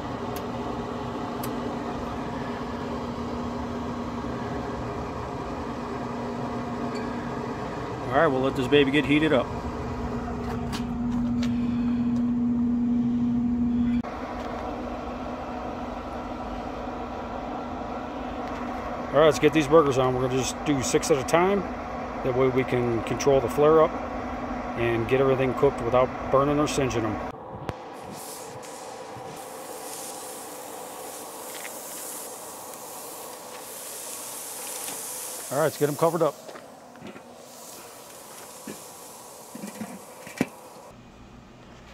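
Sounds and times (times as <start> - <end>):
grill fan humming: 0.0 - 41.9
low rumble: 27.2 - 29.5
burger patties sizzling on grill: 28.0 - 36.6, 37.3 - 41.0.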